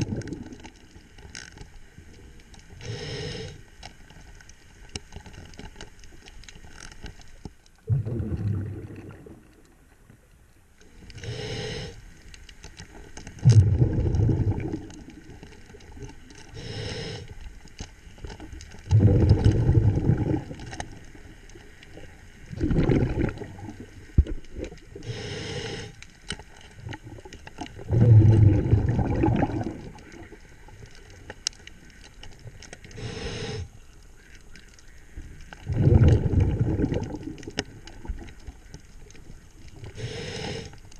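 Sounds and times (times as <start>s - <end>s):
exhaled air bubbling underwater: 0.0s - 1.2s, 7.8s - 10.1s, 10.8s - 40.9s
diver inhaling through regulator: 2.8s - 3.6s, 11.1s - 12.1s, 16.5s - 17.4s, 25.0s - 26.0s, 32.9s - 33.7s, 39.9s - 40.8s.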